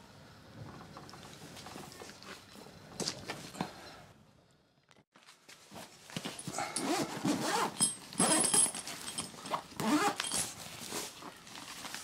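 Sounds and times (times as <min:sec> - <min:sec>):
bag zipper pulled open: 0:09.8 - 0:10.5.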